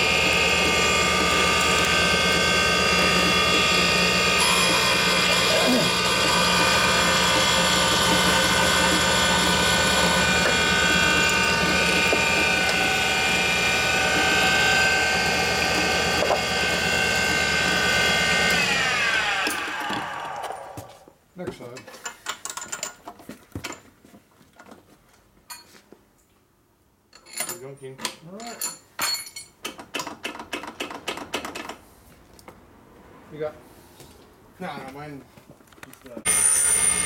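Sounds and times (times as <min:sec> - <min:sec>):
machine winding down: 0:00.0 - 0:20.8, 0:36.3 - 0:37.0
grinding machine whine: 0:00.0 - 0:20.9, 0:36.3 - 0:37.0
metal clinks and knocks: 0:27.1 - 0:30.2.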